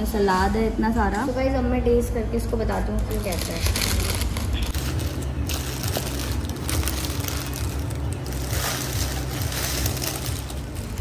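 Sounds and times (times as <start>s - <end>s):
paper wrapper crinkling: 2.9s - 11.0s.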